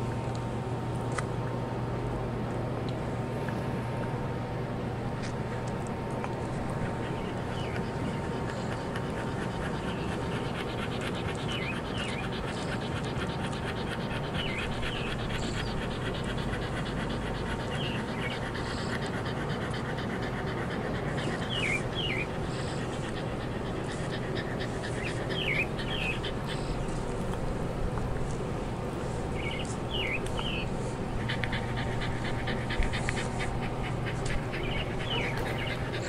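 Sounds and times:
dog panting: 0:04.1 - 0:36.0
bird chirps: 0:25.0 - 0:26.2, 0:29.4 - 0:30.7.

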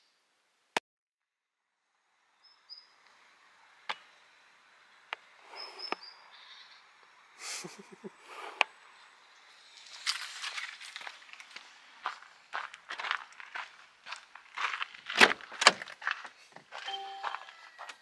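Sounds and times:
high bird chirps: 0:05.5 - 0:06.8, 0:16.9 - 0:17.9.

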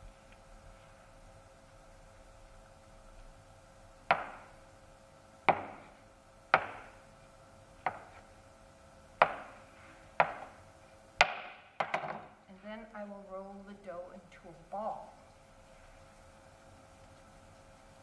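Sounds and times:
knife chopping on cutting board: 0:04.1 - 0:04.5, 0:05.5 - 0:06.0, 0:06.6 - 0:07.0, 0:07.8 - 0:08.2, 0:09.2 - 0:09.6, 0:10.2 - 0:10.6.

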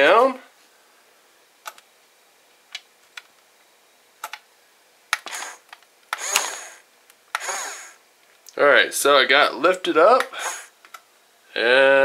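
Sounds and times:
small electric motors whirring: 0:05.2 - 0:06.8, 0:07.4 - 0:08.0.

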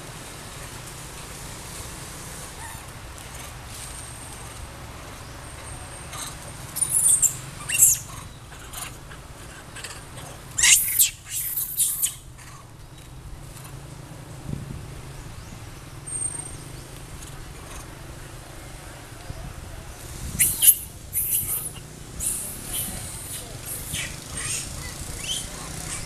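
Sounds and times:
monkeys squealing: 0:06.1 - 0:12.3, 0:20.4 - 0:26.0.

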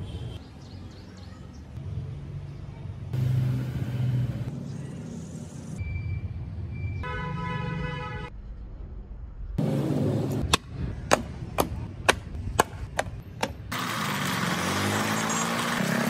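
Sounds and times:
held horn-like tone: 0:07.0 - 0:08.3.

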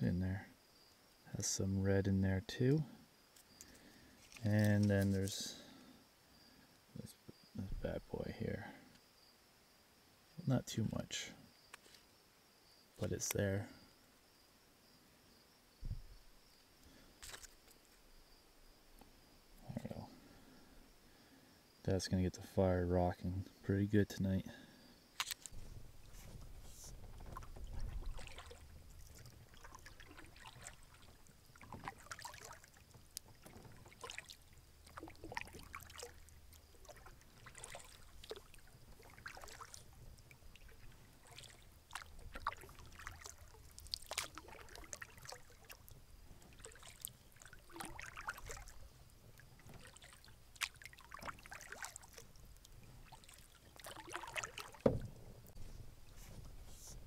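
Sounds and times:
paddle splashing water: 0:25.2 - 0:57.0.

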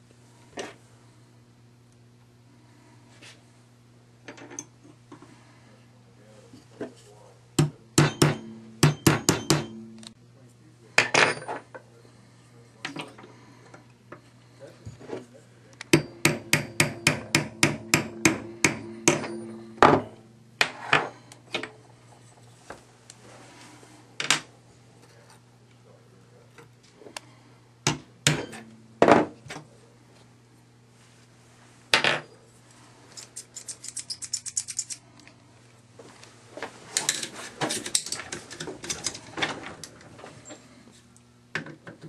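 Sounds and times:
hammer tapping a pin punch: 0:07.6 - 0:10.1, 0:15.9 - 0:20.0.

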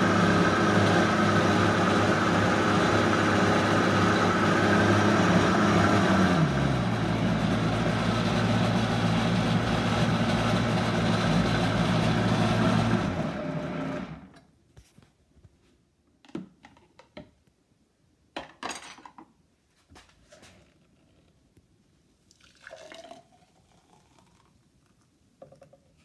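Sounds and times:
blender motor running: 0:00.0 - 0:14.3.

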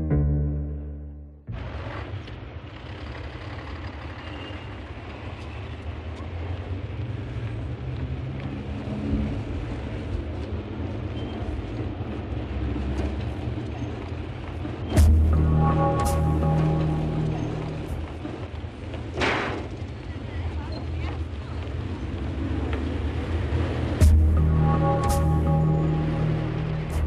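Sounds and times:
low rumble: 0:15.0 - 0:18.3, 0:24.0 - 0:27.0.

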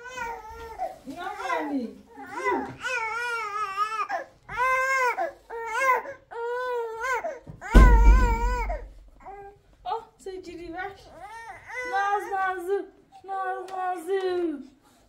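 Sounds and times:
infant crying: 0:00.0 - 0:09.6, 0:11.1 - 0:12.4.

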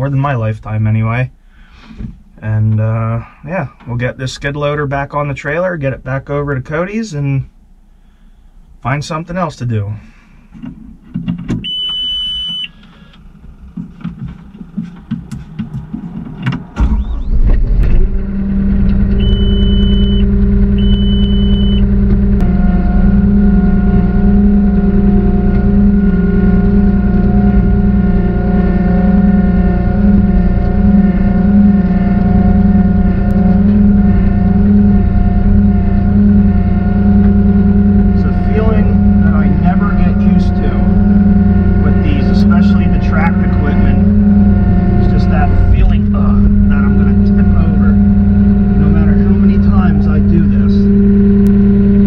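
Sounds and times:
diesel engine starting and running: 0:09.9 - 0:52.0
high electronic beeps: 0:19.1 - 0:21.9.

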